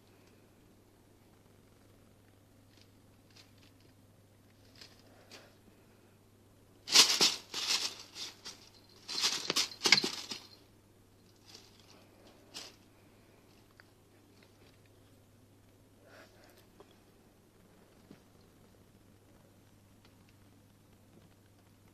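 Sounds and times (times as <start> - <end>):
cat scrabbling on plastic: 6.9 - 10.6
plastic bag crinkling: 6.9 - 10.6.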